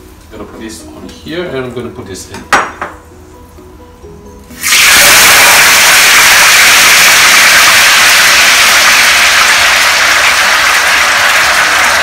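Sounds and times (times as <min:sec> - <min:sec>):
oil sizzling in a wok: 0:04.5 - 0:10.3.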